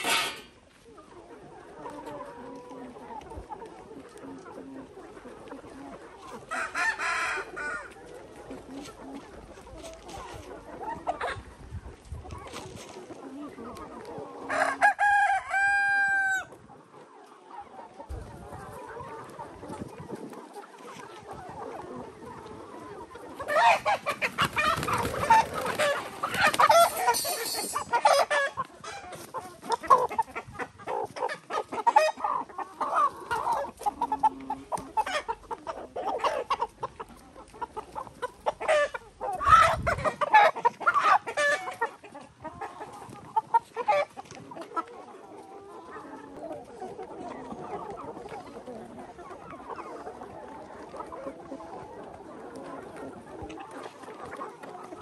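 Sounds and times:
chickens clucking: 0.0 - 55.0
roosters crowing: 14.5 - 16.5.

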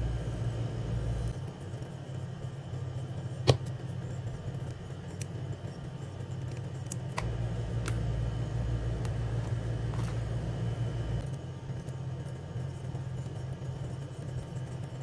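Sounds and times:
low steady rumble: 0.0 - 4.8, 6.1 - 11.4.

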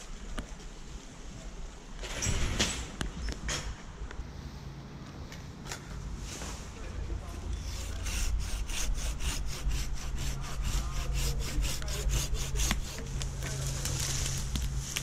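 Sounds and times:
steady low hum: 0.0 - 15.0
hand saw cutting wood: 7.5 - 14.0.

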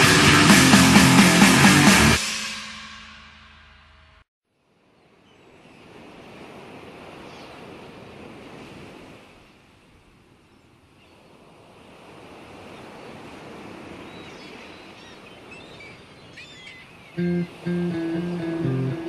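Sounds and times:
waves washing in: 5.9 - 10.1, 11.3 - 15.0, 17.2 - 19.0.

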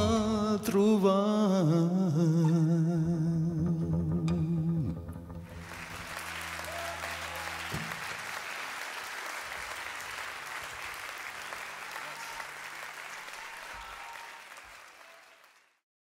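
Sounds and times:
audience applause: 5.5 - 15.8.

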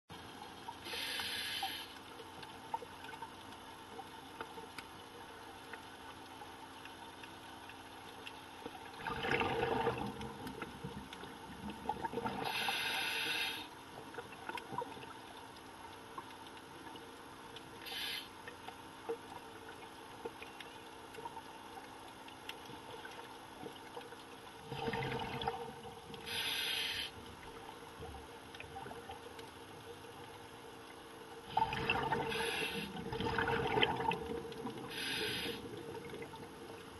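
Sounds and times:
regulator hissing inhales: 0.8 - 2.0, 12.4 - 13.7, 17.8 - 18.3, 26.2 - 27.2, 32.3 - 33.0, 34.9 - 35.7
exhaled bubbles gushing: 8.9 - 12.7, 24.6 - 26.4, 31.4 - 36.9.

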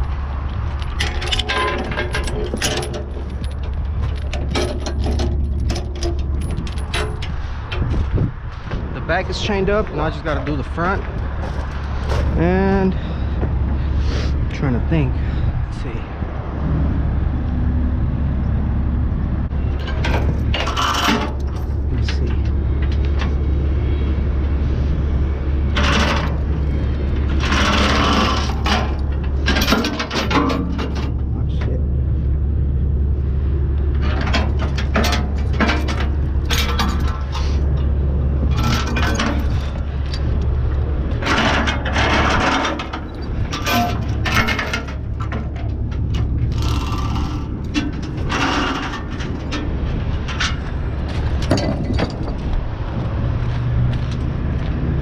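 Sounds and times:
low engine hum: 0.0 - 55.0
metal chain clinking: 0.8 - 7.4, 19.8 - 22.4, 34.0 - 40.3, 41.2 - 50.8.

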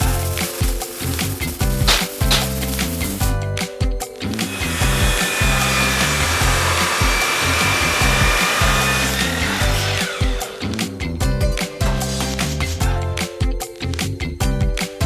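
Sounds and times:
background music with steady beat: 0.0 - 15.0
miter saw cutting steel: 4.4 - 10.9.

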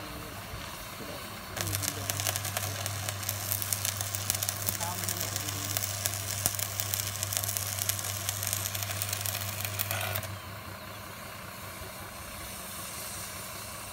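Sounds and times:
welding arc crackling: 0.0 - 10.4
low engine-like drone: 0.0 - 13.9
welding machine mains hum: 0.0 - 13.9.

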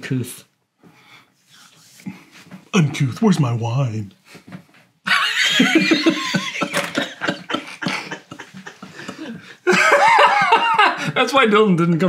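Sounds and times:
men laughing hard: 5.1 - 11.2.

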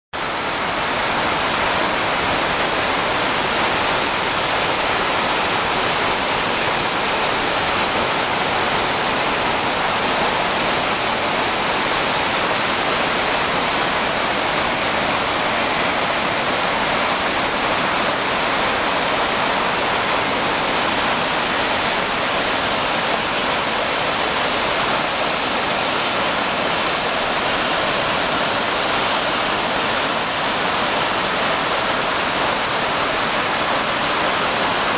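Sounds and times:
water rushing between boulders: 0.2 - 34.9.

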